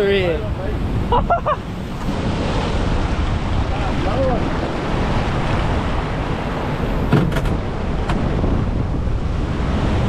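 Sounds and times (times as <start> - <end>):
surf washing over rocks: 0.0 - 10.0
wind buffeting microphone: 0.0 - 10.0
sharp knocks: 7.1 - 8.2.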